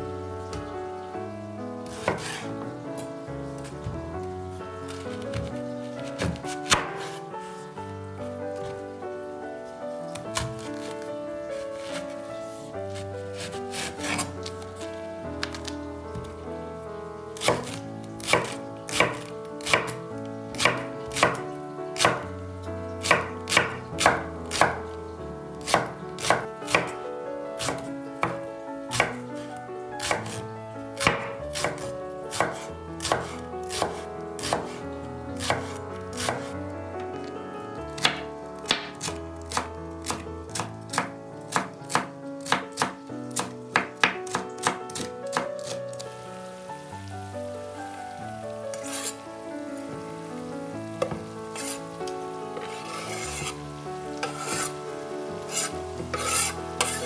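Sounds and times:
knife chopping on cutting board: 0:01.9 - 0:02.4, 0:06.1 - 0:07.2, 0:13.4 - 0:14.6, 0:17.4 - 0:20.0, 0:25.7 - 0:26.9, 0:27.6 - 0:29.2, 0:30.0 - 0:30.4, 0:31.0 - 0:34.8, 0:51.0 - 0:51.8, 0:52.6 - 0:53.6, 0:54.2 - 0:54.7, 0:55.5 - 0:57.0.

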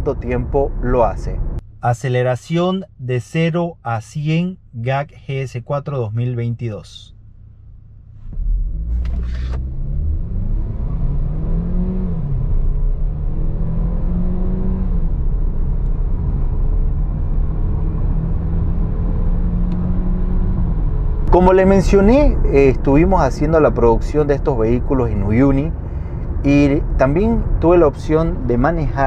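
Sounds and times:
car engine accelerating: 0:07.2 - 0:29.0.

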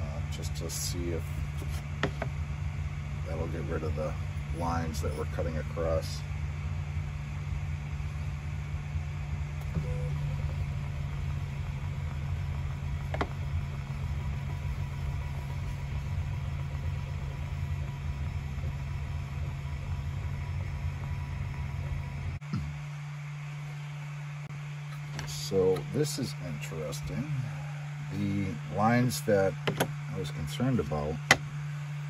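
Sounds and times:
low machine hum: 0:00.0 - 0:32.0.

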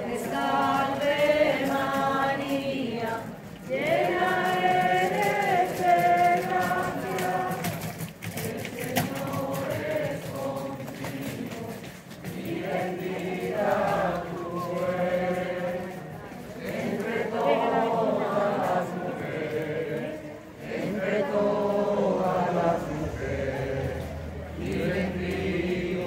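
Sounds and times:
group of voices chanting: 0:16.6 - 0:26.0.

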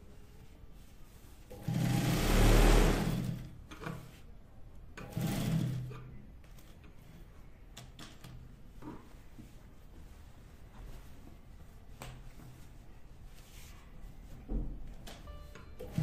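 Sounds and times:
industrial sewing machine stitching: 0:01.5 - 0:03.5, 0:05.0 - 0:06.0.

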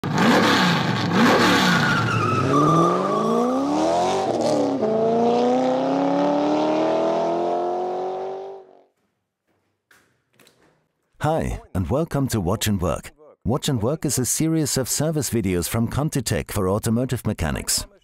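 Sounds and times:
car engine revving: 0:00.0 - 0:08.8.

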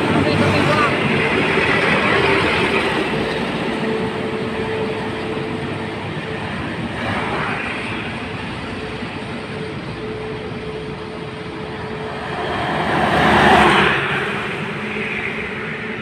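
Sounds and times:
heavy trucks driving away: 0:00.0 - 0:16.0
car passing close: 0:12.1 - 0:16.0.

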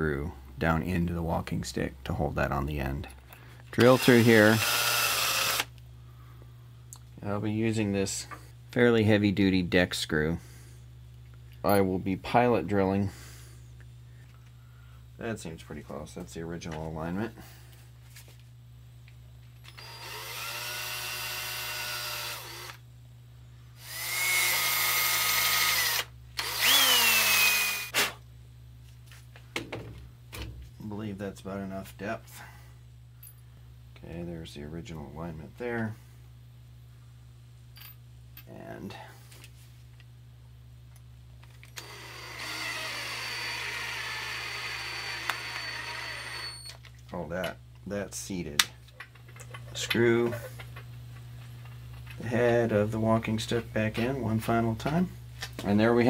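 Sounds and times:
power drill whining: 0:03.8 - 0:05.7, 0:19.7 - 0:22.8, 0:23.8 - 0:28.1, 0:41.8 - 0:46.8.

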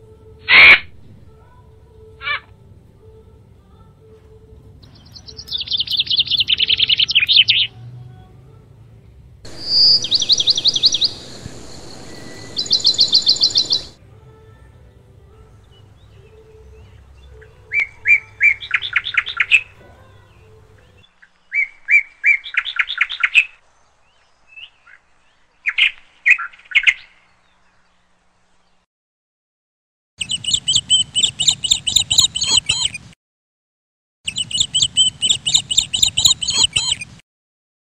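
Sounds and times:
lovebird chirping: 0:04.9 - 0:07.7, 0:09.5 - 0:14.0, 0:30.2 - 0:33.0, 0:34.3 - 0:37.2.

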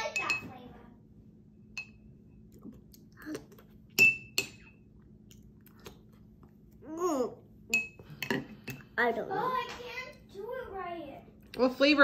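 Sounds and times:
metal spoon clinking on mug: 0:04.0 - 0:04.7, 0:07.7 - 0:08.8.

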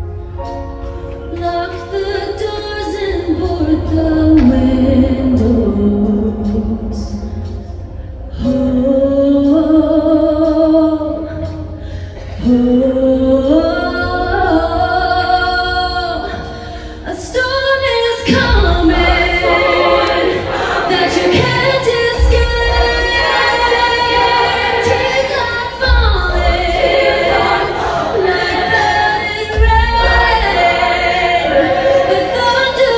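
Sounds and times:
choir singing in harmony: 0:00.0 - 0:32.9
low beats: 0:00.0 - 0:32.9.

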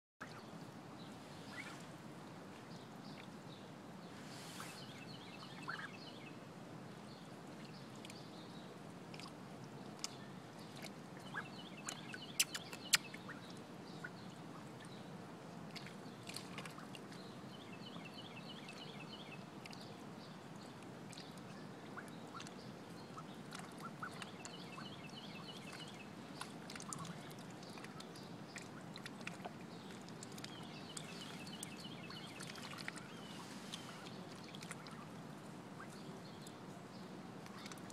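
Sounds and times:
water trickling: 0:07.1 - 0:36.6, 0:37.4 - 0:37.9
ducks splashing in water: 0:09.1 - 0:14.9, 0:15.7 - 0:17.2, 0:20.6 - 0:36.6, 0:37.4 - 0:37.9.

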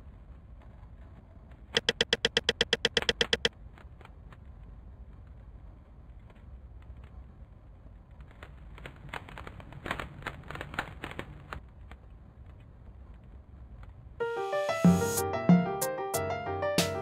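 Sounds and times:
fire crackling: 0:03.5 - 0:13.9.

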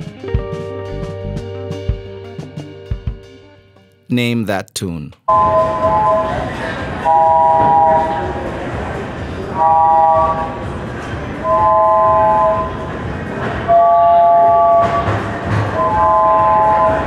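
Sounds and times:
organ chords: 0:00.2 - 0:03.5.

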